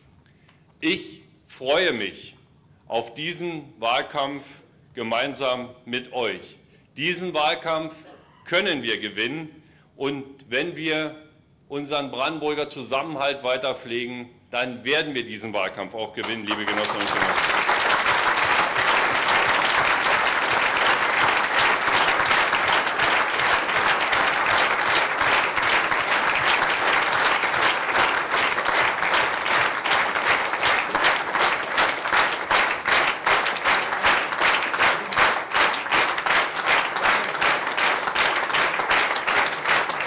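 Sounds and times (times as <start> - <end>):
crowd applauding: 16.2 - 40.0
rhythmic clapping in unison: 16.2 - 40.0.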